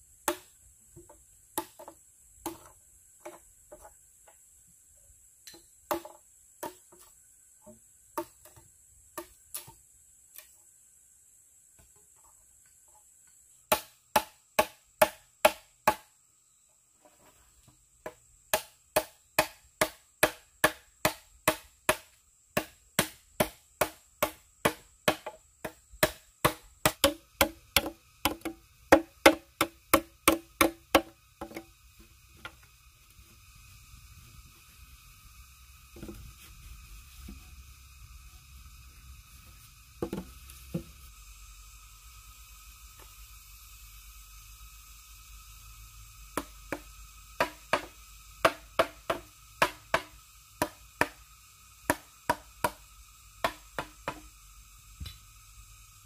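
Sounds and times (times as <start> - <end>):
machete chopping bamboo: 0.2 - 0.6, 1.5 - 2.7, 13.7 - 16.1, 18.0 - 31.7, 46.4 - 51.2, 51.8 - 52.8, 53.4 - 54.3.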